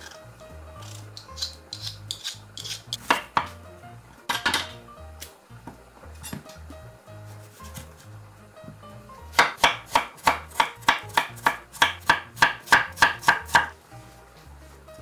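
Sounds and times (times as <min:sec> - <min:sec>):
knife chopping on wooden board: 0:01.3 - 0:03.6, 0:09.3 - 0:13.7.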